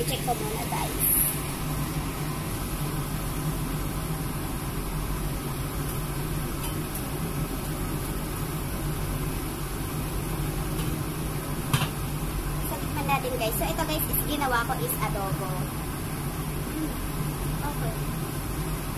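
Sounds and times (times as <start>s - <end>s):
range hood fan humming: 0.0s - 18.9s.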